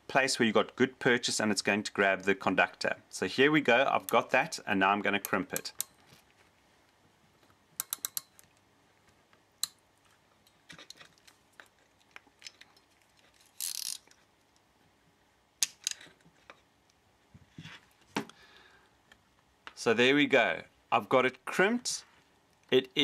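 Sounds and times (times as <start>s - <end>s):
ratcheting crimper clicking: 7.8s - 8.4s, 13.6s - 14.1s.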